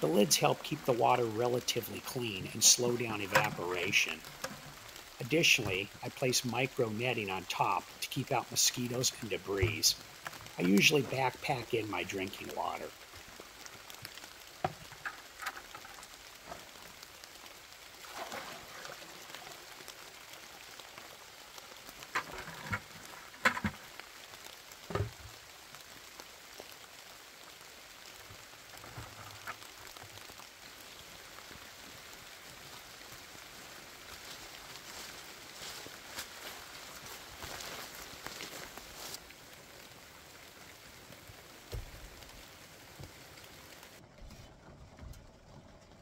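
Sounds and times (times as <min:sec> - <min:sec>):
light rain hiss: 0:00.0 - 0:46.0
plastic buckets knocking and clattering: 0:22.2 - 0:23.8.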